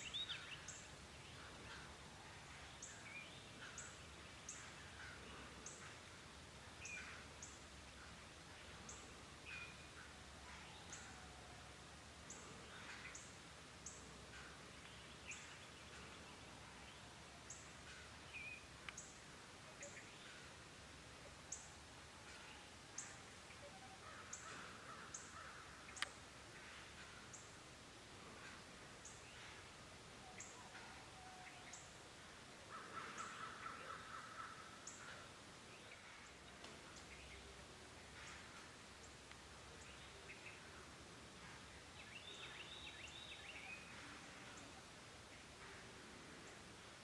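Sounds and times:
faint bird chirps: 28.2 - 46.8.

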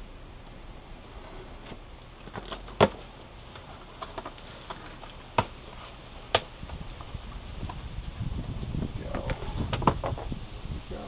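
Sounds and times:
cardboard flaps tapping and scraping: 1.6 - 10.3
sharp cardboard cracks: 2.0 - 7.8.

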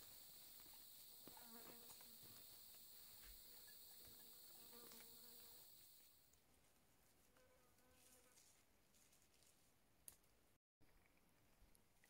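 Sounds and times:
high-pitched insect chorus: 0.0 - 6.2.

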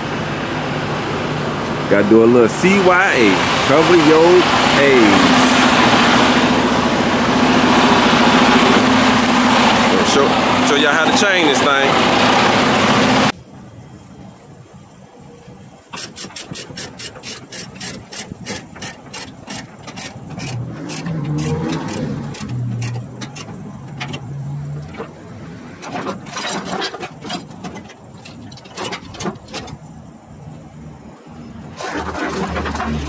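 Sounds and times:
ratchet pawl clicking: 16.0 - 23.5.

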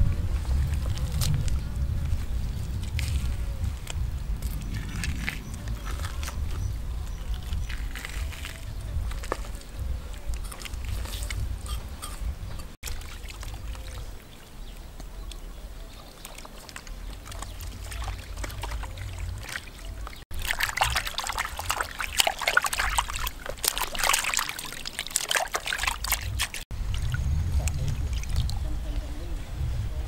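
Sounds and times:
water splashing in a plastic basin: 12.8 - 29.1.

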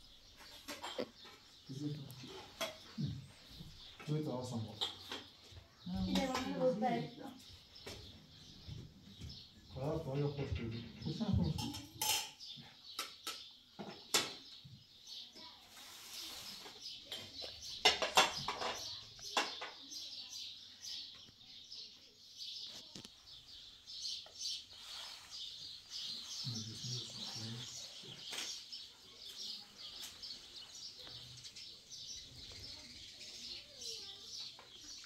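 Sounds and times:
small birds chirping: 0.0 - 35.0.

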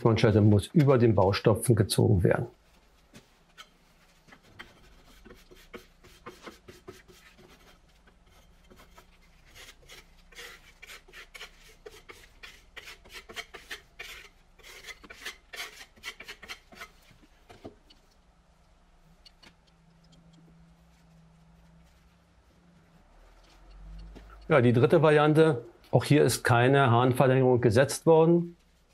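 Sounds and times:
spatula scraping paste on wall: 3.2 - 18.1.

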